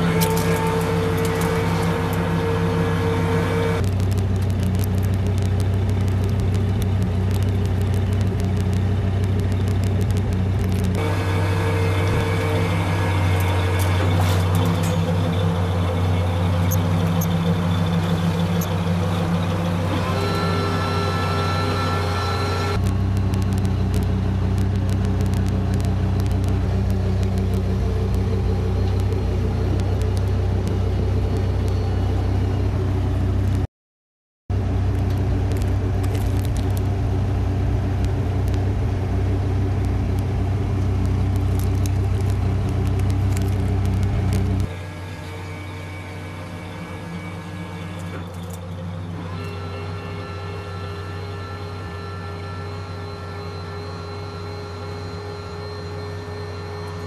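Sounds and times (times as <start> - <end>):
truck engine idling: 0.0 - 33.6.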